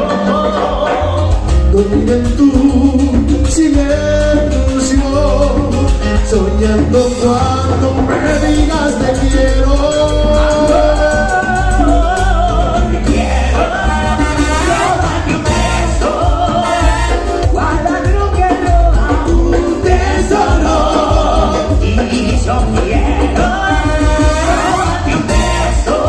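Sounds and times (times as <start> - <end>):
latin band playing: 0.0 - 26.0
voices singing: 10.0 - 26.0
trumpet and trombone: 13.1 - 17.9, 23.4 - 26.0.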